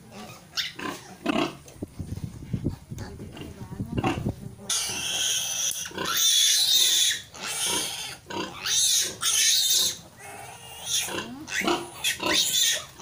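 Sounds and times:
piglet squealing: 0:04.7 - 0:13.0.

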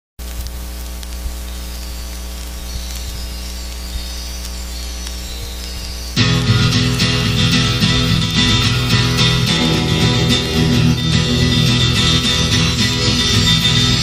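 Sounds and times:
faint clicks: 0:00.2 - 0:06.2
low electrical hum: 0:00.2 - 0:14.0
loud guitar music: 0:01.8 - 0:14.0.

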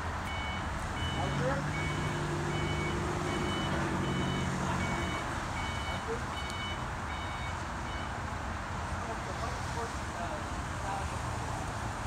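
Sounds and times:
low engine hum: 0:00.0 - 0:06.0
vehicle reversing alarm beeping: 0:00.2 - 0:08.2.

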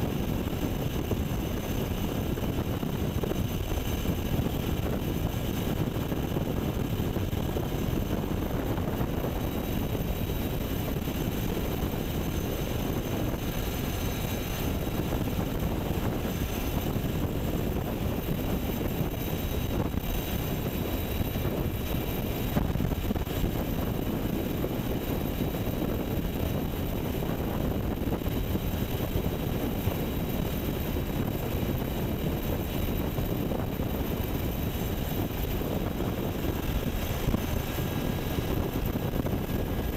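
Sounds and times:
helicopter rotor and engine noise: 0:00.0 - 0:39.9.

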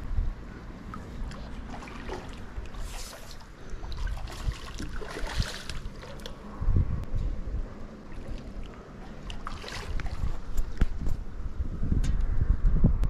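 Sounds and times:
water splashing and sloshing: 0:00.4 - 0:06.6, 0:07.4 - 0:11.5.

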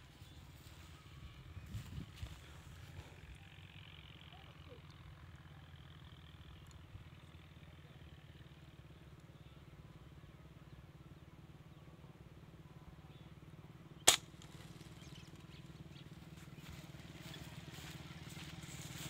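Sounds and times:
faint low rumble: 0:00.0 - 0:19.0
air rifle shot: 0:14.1 - 0:14.7.

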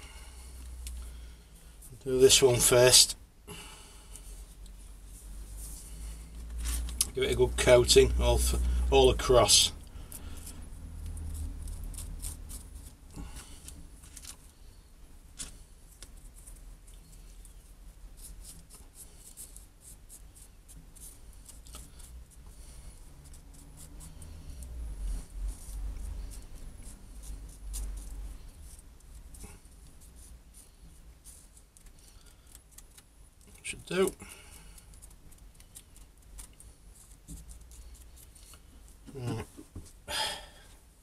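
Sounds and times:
foil-wrapped stone handled: 0:11.7 - 0:14.5.

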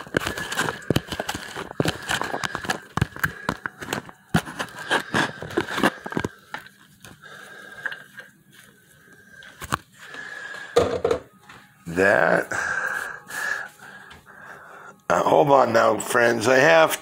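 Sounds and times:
crinkling and scraping handling sounds: 0:00.0 - 0:11.8.

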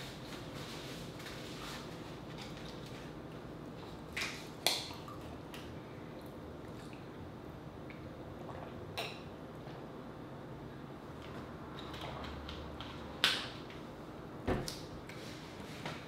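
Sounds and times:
liquid and swallowing: 0:07.9 - 0:09.0.

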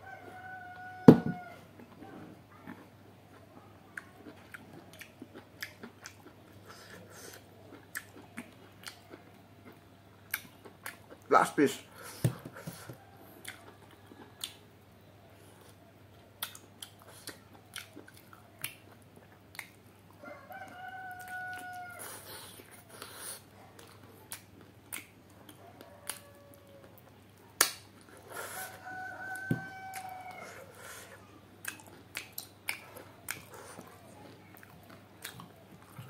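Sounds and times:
rooster crowing: 0:00.0 - 0:01.6, 0:20.2 - 0:22.2, 0:25.7 - 0:27.0, 0:28.4 - 0:30.7
chewing and lip-smacking: 0:01.8 - 0:11.3, 0:13.2 - 0:14.7, 0:15.4 - 0:20.2, 0:21.1 - 0:28.7, 0:29.9 - 0:36.0.

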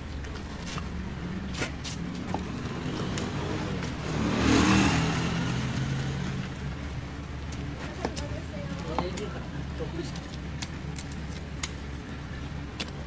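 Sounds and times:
motor vehicle passing by: 0:01.2 - 0:06.8.

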